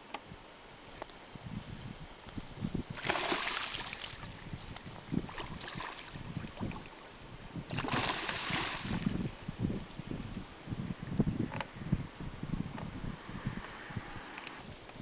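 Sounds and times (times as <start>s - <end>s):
animal splashing in water: 2.9s - 4.3s, 5.2s - 7.0s, 7.7s - 9.2s.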